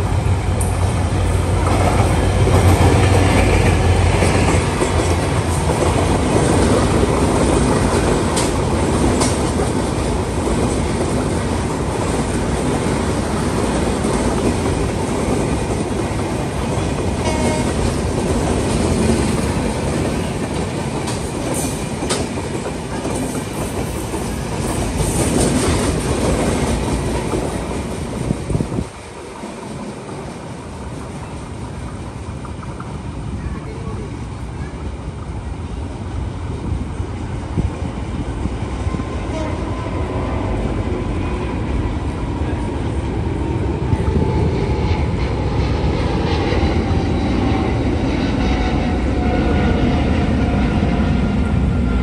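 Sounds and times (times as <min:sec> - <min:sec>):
locomotive engine hum: 0:00.0 - 0:52.0
wheels clacking over rail joints: 0:00.6 - 0:33.0.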